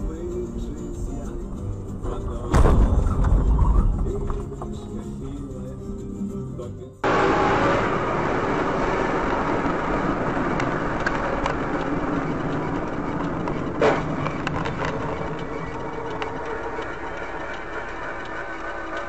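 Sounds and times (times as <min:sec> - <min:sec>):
background music: 0:00.0 - 0:07.1
car road and engine noise: 0:00.0 - 0:19.0
faint clicks: 0:10.4 - 0:19.0.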